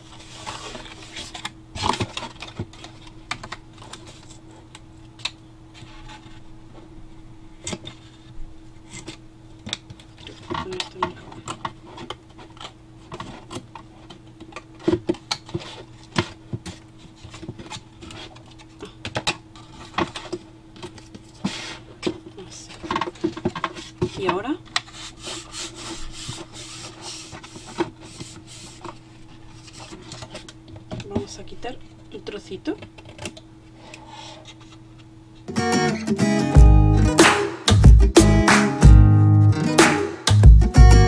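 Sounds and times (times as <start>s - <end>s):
card crinkling: 24.6s - 30.6s.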